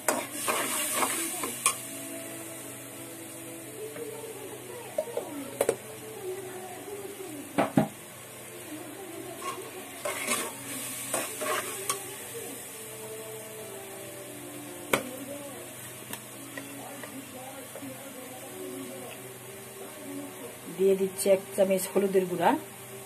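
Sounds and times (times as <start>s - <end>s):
low sizzle: 0.0s - 23.0s
spatula scraping metal pan: 9.4s - 12.0s.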